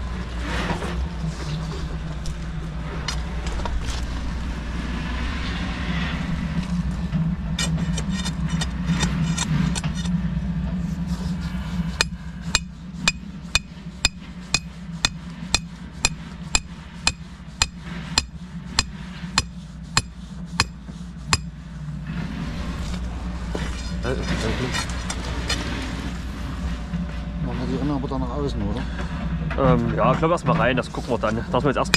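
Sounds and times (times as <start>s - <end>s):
low engine hum: 0.0s - 31.9s
hammer striking metal pin: 12.0s - 21.5s.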